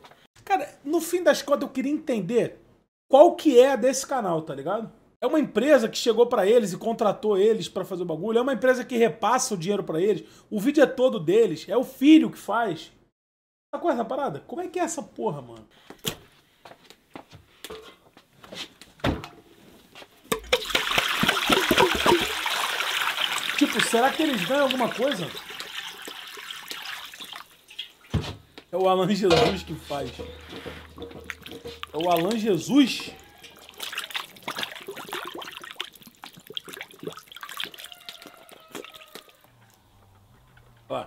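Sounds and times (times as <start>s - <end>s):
water pouring and splashing: 20.3s - 28.4s, 29.3s - 39.5s
wet squelches and slaps of chicken: 20.5s - 28.4s, 30.3s - 39.5s.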